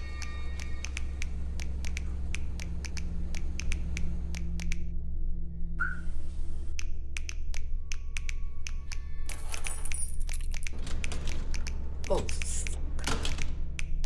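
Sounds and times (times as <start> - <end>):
steady low hum: 0.0 - 9.3
sharp irregular clicks: 0.6 - 4.9, 10.2 - 14.0.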